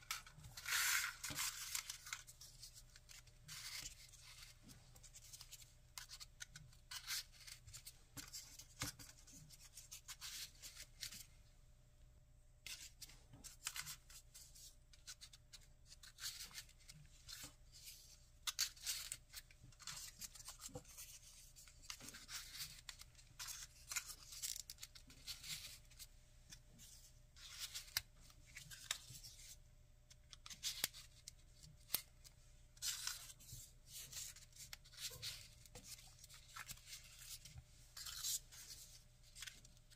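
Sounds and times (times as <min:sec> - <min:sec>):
folded paper rustling and scraping: 0:00.0 - 0:11.2.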